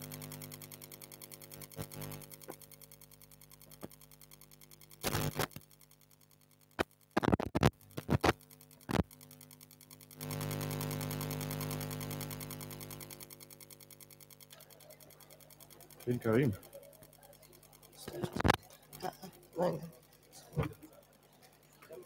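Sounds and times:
electrical hum: 0.0 - 22.0
sharp clicks and knocks: 1.6 - 9.2, 18.0 - 19.0.

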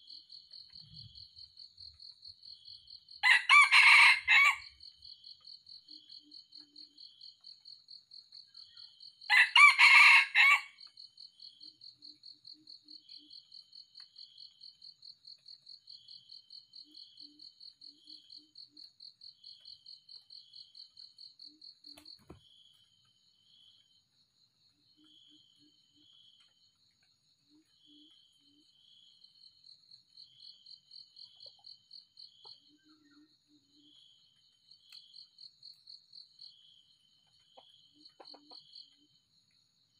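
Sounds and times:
rooster crowing: 3.2 - 4.8, 9.3 - 10.8.

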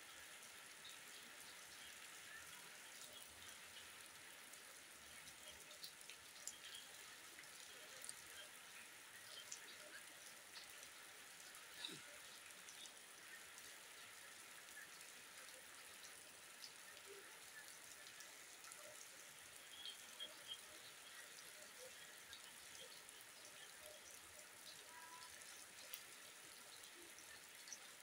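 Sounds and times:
rain falling on foliage: 0.0 - 28.0.

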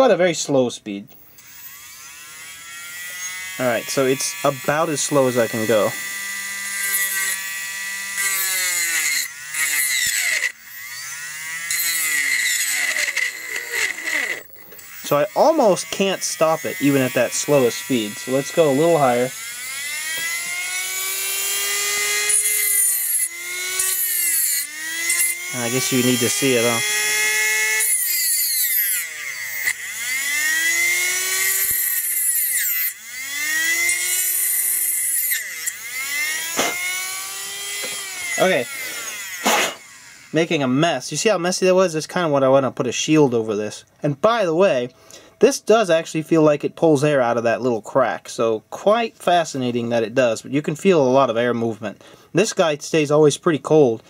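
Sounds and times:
electric motor whining hum: 1.1 - 40.8
rotary bit cutting brass: 1.2 - 40.8.

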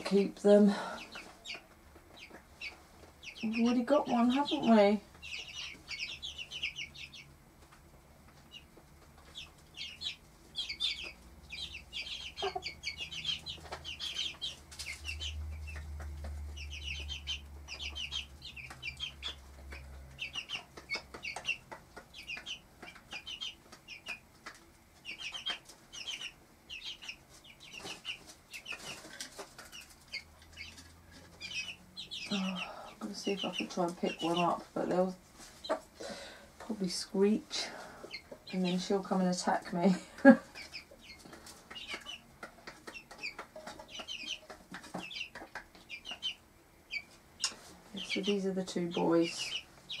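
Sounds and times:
chicks peeping: 0.0 - 50.0.

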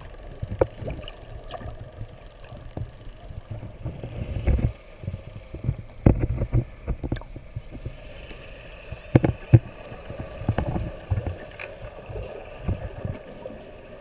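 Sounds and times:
dolphins whistling underwater: 0.0 - 5.3, 7.3 - 14.0
low underwater rumble: 0.0 - 14.0
underwater thumps: 5.6 - 7.3.

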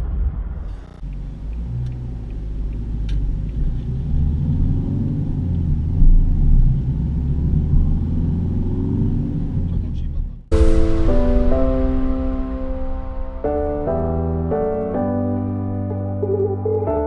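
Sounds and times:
road rumble inside car: 0.0 - 10.5
car engine accelerating: 0.0 - 16.6.

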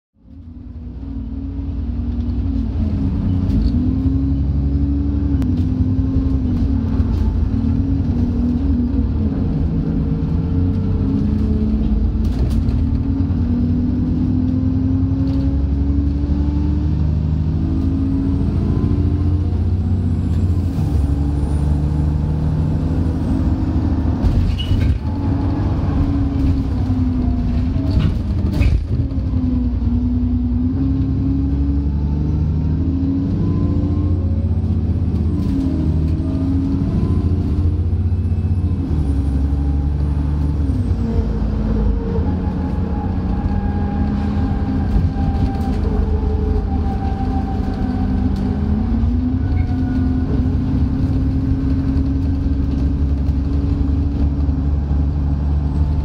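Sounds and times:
bus diesel engine revving: 0.6 - 56.0.

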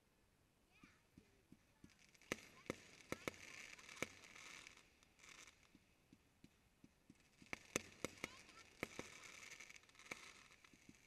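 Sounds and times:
fireworks bursting: 0.9 - 11.0.

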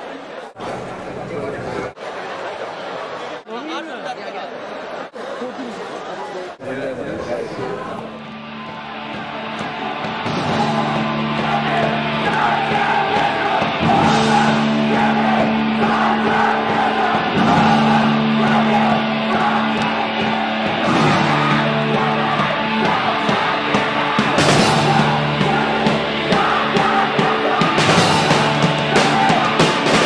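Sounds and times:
punk rock band playing: 8.0 - 30.0.

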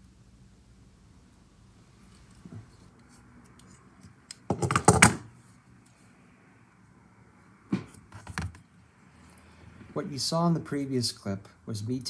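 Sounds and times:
handling clicks and knocks: 4.4 - 5.2.

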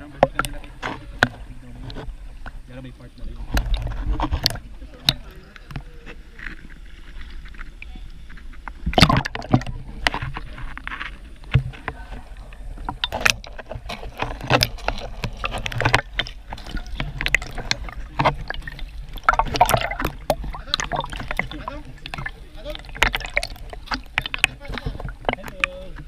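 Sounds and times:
water splashing from swimming: 0.0 - 26.0.

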